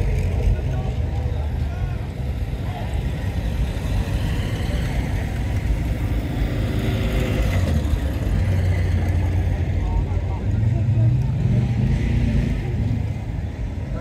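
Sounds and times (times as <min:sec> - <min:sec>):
car engines driving slowly past: 0:00.0 - 0:14.0.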